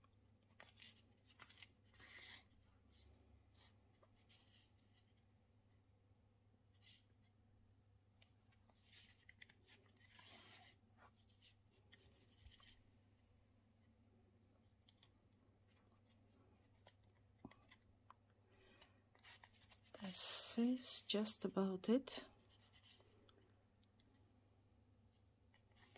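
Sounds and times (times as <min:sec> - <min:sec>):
needle and thread rustling: 0:08.1 - 0:13.2, 0:14.6 - 0:21.3, 0:21.9 - 0:24.3.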